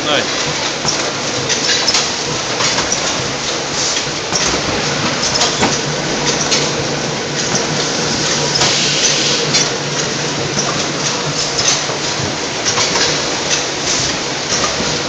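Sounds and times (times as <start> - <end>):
gripper and conveyor clicks: 0.0 - 15.0
packing machine hum: 0.0 - 15.0
machine hiss: 7.3 - 12.2.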